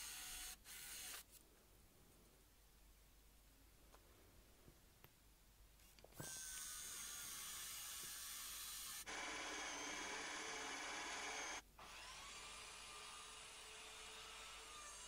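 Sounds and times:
cordless drill cutting wood: 0.0 - 1.3, 6.2 - 15.0
quiet steady hum: 1.0 - 6.6.

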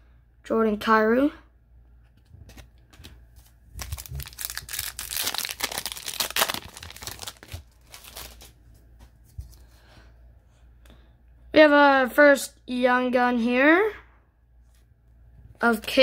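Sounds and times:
wrapper crinkling and tearing: 3.4 - 8.6.

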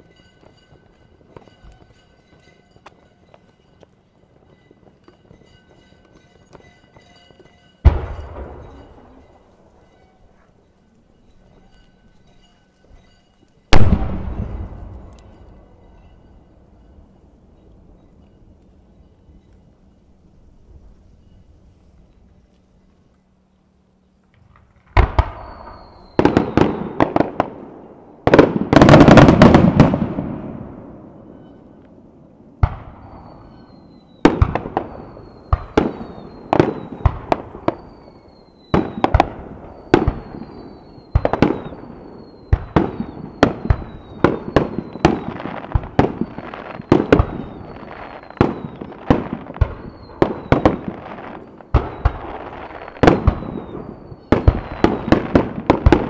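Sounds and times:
firework bangs: 7.8 - 9.3, 13.7 - 15.4, 24.9 - 31.5, 32.6 - 56.0.

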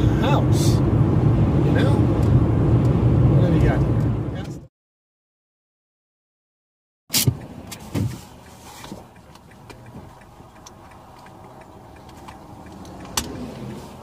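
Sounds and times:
knocks of things moved in car: 7.1 - 9.1
car blinker relay clicking: 7.1 - 14.0.

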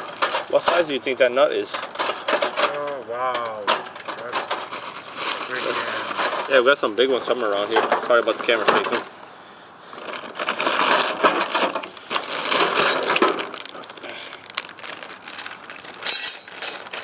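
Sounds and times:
crinkling: 4.3 - 9.0, 9.8 - 17.0
metal nuts and bolts clinking: 10.7 - 13.5, 15.4 - 17.0.

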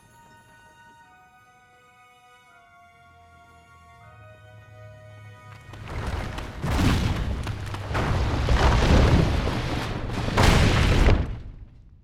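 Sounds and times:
rock collapsing and debris falling: 5.6 - 12.0.

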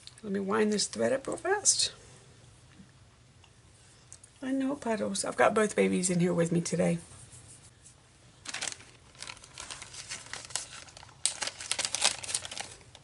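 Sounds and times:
plastic bag crinkling: 8.4 - 13.0.

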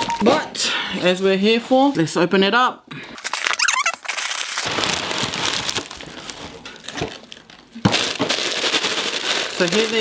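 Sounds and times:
plastic bag crinkling: 3.2 - 10.0.

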